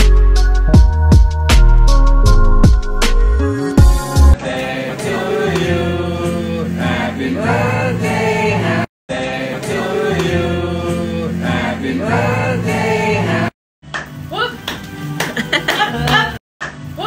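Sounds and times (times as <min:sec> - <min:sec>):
steady bass line: 0:00.0 - 0:04.4
singing over music: 0:04.2 - 0:13.5.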